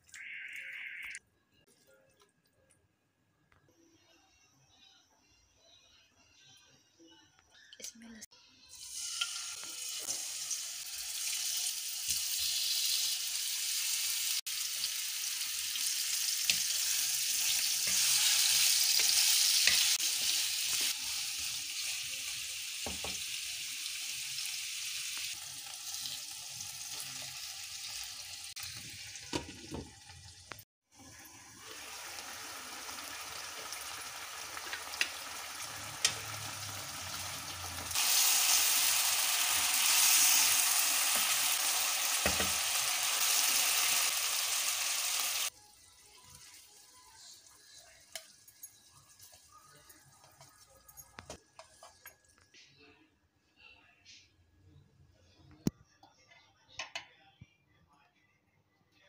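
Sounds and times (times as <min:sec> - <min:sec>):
chicken sizzling in hot oil: 0:08.7 - 0:50.6.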